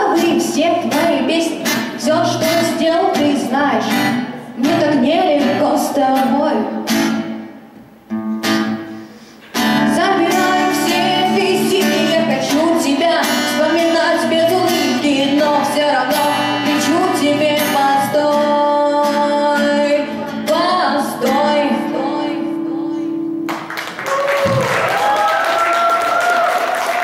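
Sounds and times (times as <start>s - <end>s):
woman singing: 0.0s - 6.9s, 9.6s - 23.4s
strummed acoustic guitar: 0.0s - 23.4s.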